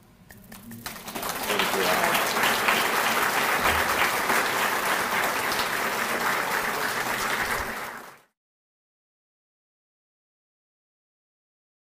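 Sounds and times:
audience applauding: 0.5s - 8.3s.

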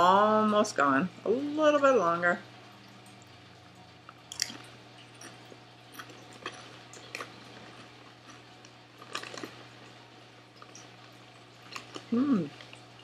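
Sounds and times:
potato chip crunching: 4.3s - 13.0s.

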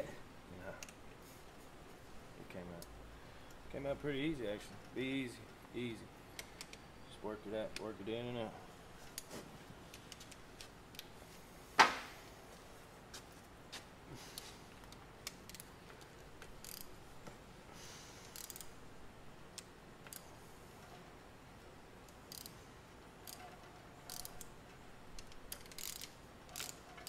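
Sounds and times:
socket ratchet clicking: 14.9s - 15.7s, 16.6s - 16.9s, 18.3s - 18.7s, 22.1s - 22.6s, 23.2s - 23.5s, 24.1s - 24.5s, 25.2s - 27.0s.

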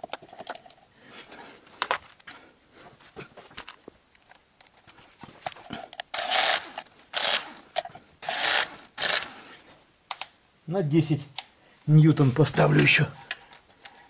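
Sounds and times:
ratchet tool rasping bursts: 6.1s - 7.6s, 8.2s - 9.4s.

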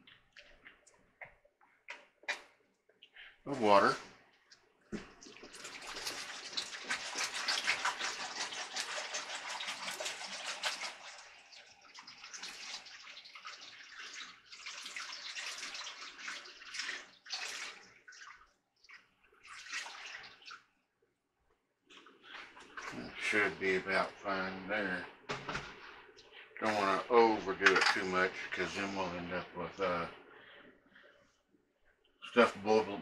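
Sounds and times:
water pouring from a jug: 4.9s - 20.8s, 21.9s - 30.6s.

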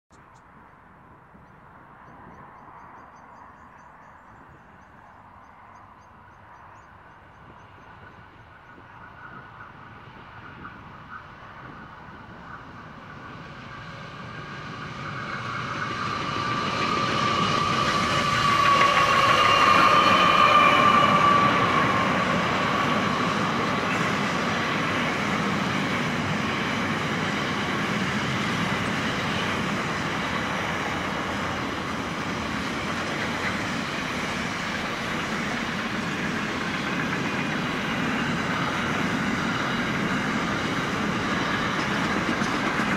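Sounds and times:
diesel locomotives passing: 0.5s - 42.9s
train wheels rumbling on rail: 1.3s - 42.9s.

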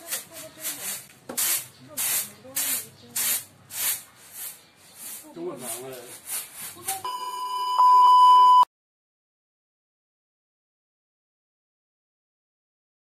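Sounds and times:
test-card beep: 7.0s - 8.7s.

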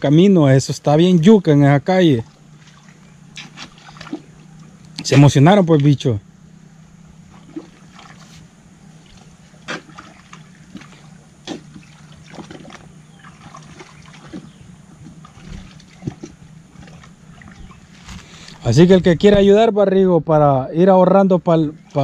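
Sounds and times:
low hum: 0.0s - 22.0s
water splashing in a creek: 1.0s - 6.1s, 7.3s - 18.6s.

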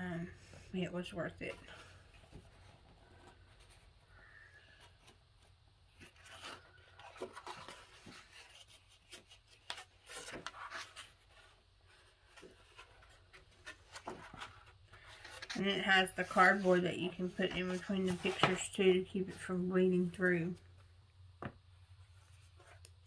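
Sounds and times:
cardstock pages turning: 5.9s - 19.5s.

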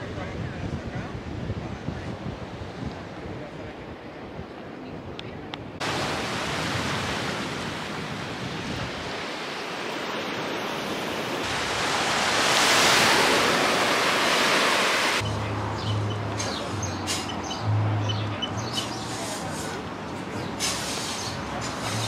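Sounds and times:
surf on beach: 0.0s - 16.1s
wind: 0.0s - 22.0s.

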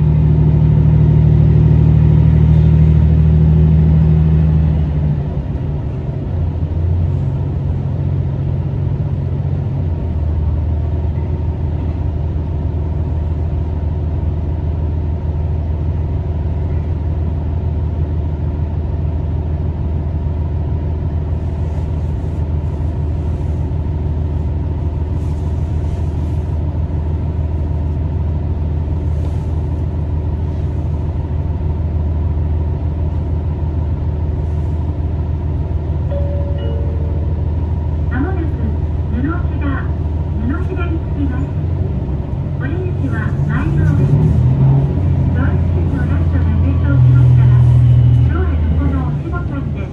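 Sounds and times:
diesel engine drone: 0.0s - 49.9s.

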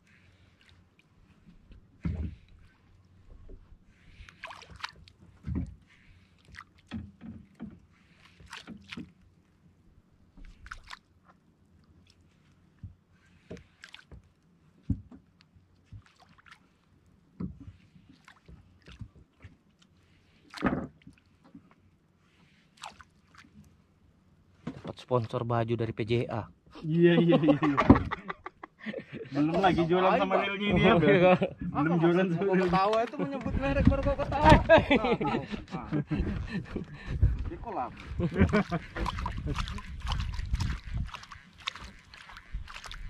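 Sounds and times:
water splashing against hull: 0.0s - 25.4s, 27.5s - 28.6s, 31.6s - 43.0s
knocks and thumps on boat: 1.5s - 2.6s, 5.3s - 5.9s, 6.8s - 8.0s, 14.8s - 16.1s, 17.3s - 17.8s, 20.6s - 21.7s, 27.6s - 28.3s, 32.7s - 41.2s.

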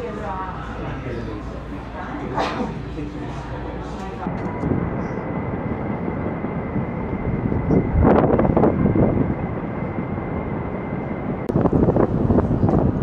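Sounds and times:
wind buffeting microphone: 4.2s - 13.0s.

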